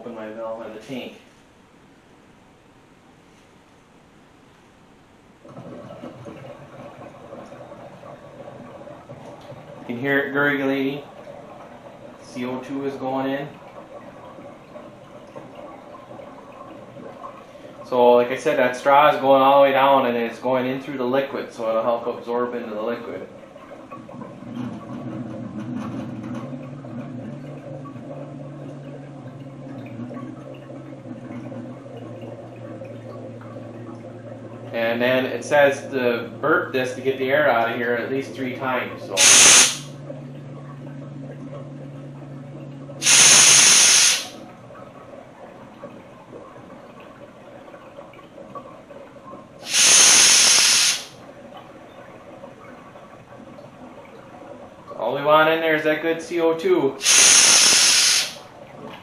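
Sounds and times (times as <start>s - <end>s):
gas bubbling through liquid: 5.4s - 59.0s
low hum: 20.0s - 50.4s
pressure relief valve venting hiss: 39.1s - 39.9s, 43.0s - 44.4s, 49.6s - 51.2s, 57.0s - 58.5s.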